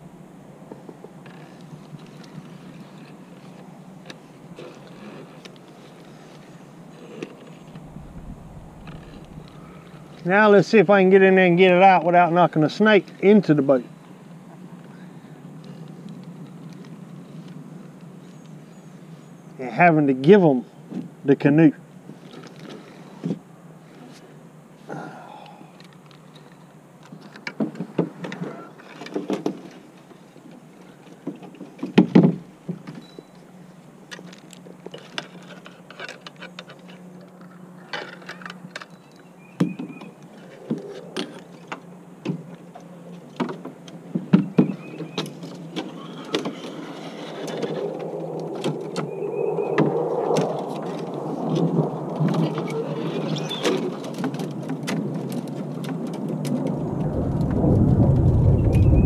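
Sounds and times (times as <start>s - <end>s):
branches scraping along canoe: 1.2s - 10.4s, 22.1s - 24.4s, 40.1s - 43.7s, 44.7s - 49.3s.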